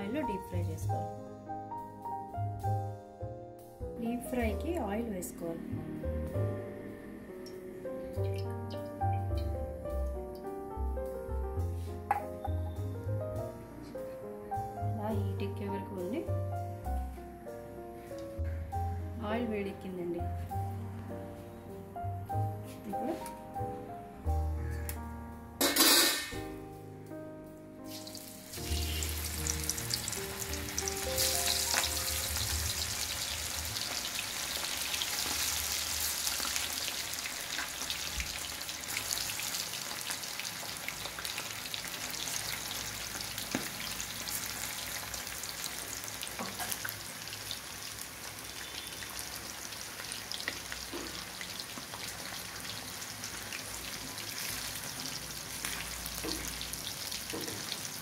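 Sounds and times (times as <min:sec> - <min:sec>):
background music: 0:00.0 - 0:37.2
deep-frying sizzle in hot oil: 0:27.9 - 0:58.0.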